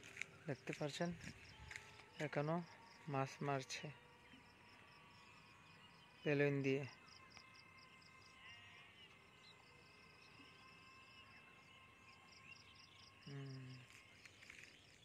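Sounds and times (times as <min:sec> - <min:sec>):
person's voice: 0:00.5 - 0:01.4, 0:02.2 - 0:04.0, 0:06.3 - 0:06.9, 0:13.3 - 0:13.9.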